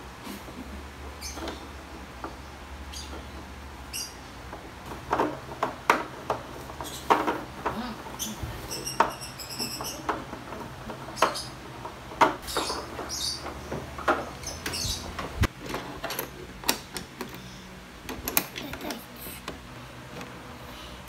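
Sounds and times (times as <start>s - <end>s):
hard plastic parts knocking: 4.4s - 17.4s
plastic rubbing squeaks: 6.3s - 16.0s.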